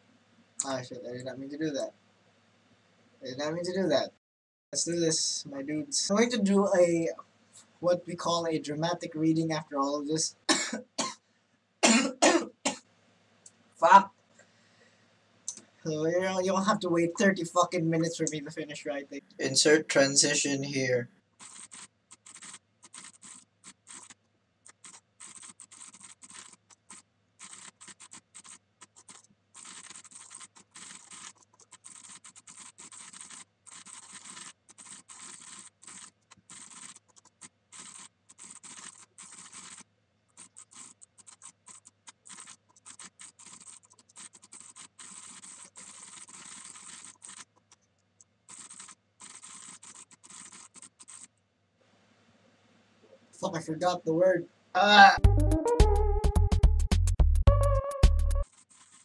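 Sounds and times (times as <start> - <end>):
mechanical keyboard typing: 21.4 - 39.8, 40.4 - 47.8, 48.5 - 51.3.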